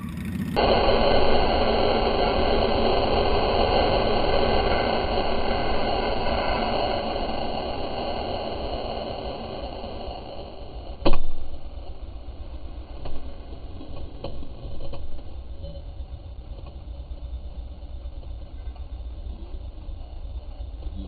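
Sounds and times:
motorcycle engine idling: 0.0s - 0.6s.

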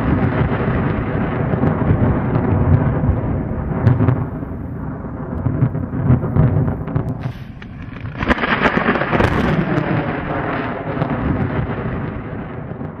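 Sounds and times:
thunder rumbling and cracking: 0.0s - 13.0s.

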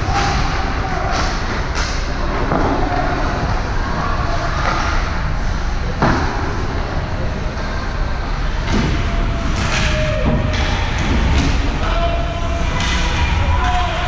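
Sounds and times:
team game noise in hall: 0.0s - 14.0s.

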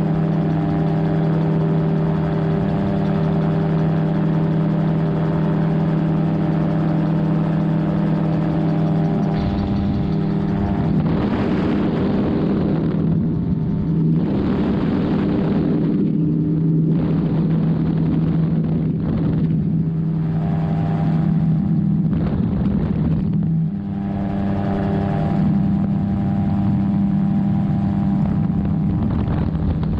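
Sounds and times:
aircraft engine and propeller drone: 0.0s - 29.9s
wind rushing: 9.0s - 23.4s.

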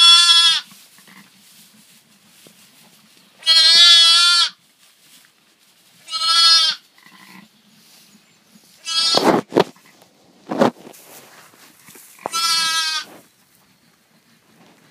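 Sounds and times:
lambs bleating: 0.0s - 1.3s, 3.4s - 4.6s, 6.0s - 7.5s, 8.8s - 10.0s, 12.2s - 13.2s.

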